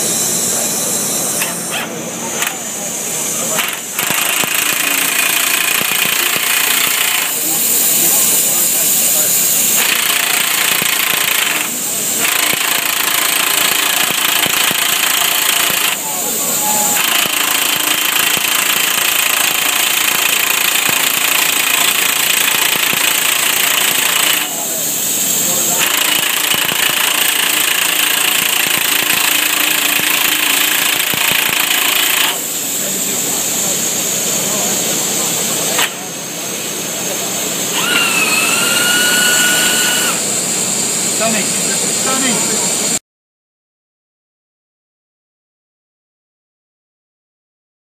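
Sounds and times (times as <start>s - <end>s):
compressed air hiss: 0.0s - 35.9s
pneumatic air tool rattling: 0.0s - 36.1s, 36.7s - 40.4s.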